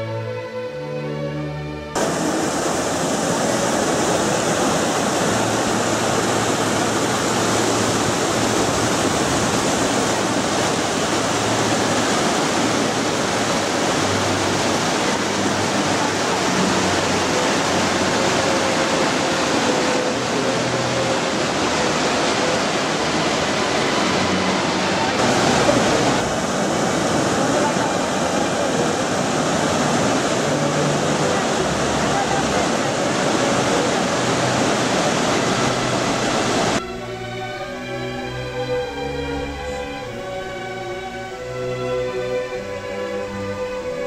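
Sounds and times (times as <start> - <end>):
waterfall rushing: 2.0 - 44.0.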